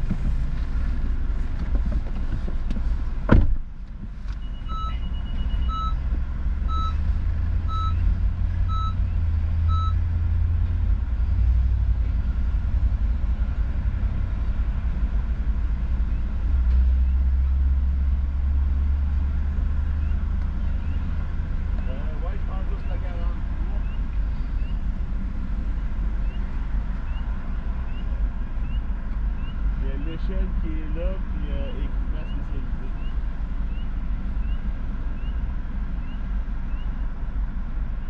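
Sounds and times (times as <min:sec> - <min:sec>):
low vehicle rumble: 0:00.0 - 0:38.0
loud thump: 0:03.2 - 0:03.7
electronic short beeps: 0:04.4 - 0:06.0.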